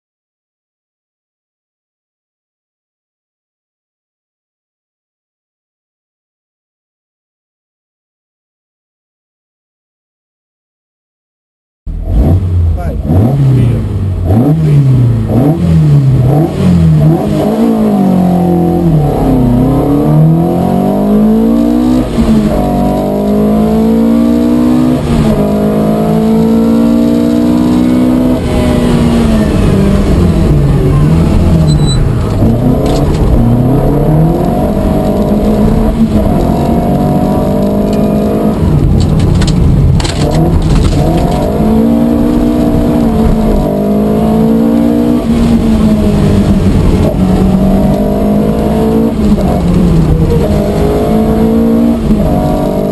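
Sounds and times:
rally car engine accelerating: 0:11.9 - 0:52.9.

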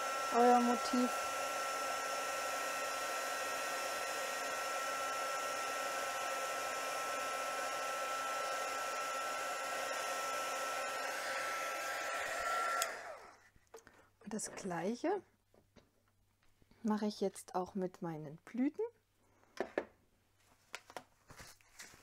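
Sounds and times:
heat tool blowing air: 0:00.0 - 0:13.4.

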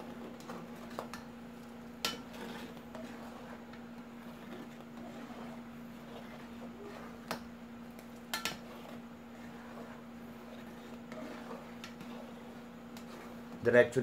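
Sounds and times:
spoon stirring liquid in pot: 0:00.0 - 0:13.6
steady low hum: 0:00.0 - 0:14.0.

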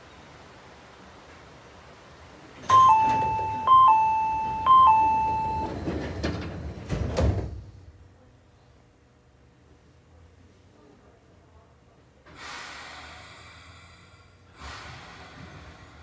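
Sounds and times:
train doors clattering shut: 0:02.6 - 0:07.9
two-tone ding-dong chime: 0:02.7 - 0:05.7.

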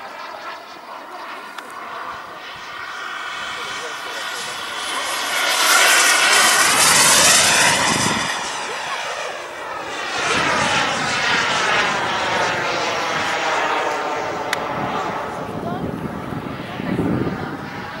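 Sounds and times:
model jet engine flying past: 0:00.0 - 0:18.0.

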